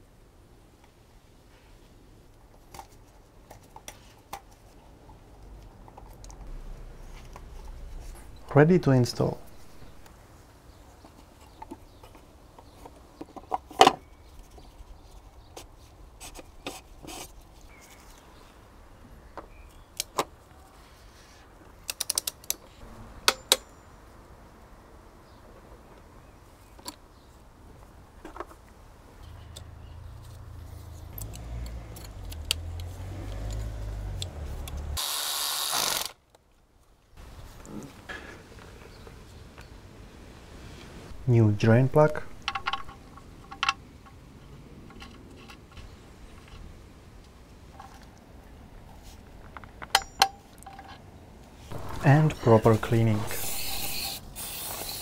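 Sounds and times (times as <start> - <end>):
low rumble: 6.3 - 10.1, 51.7 - 53.9
short loud noisy burst: 51.7 - 54.2.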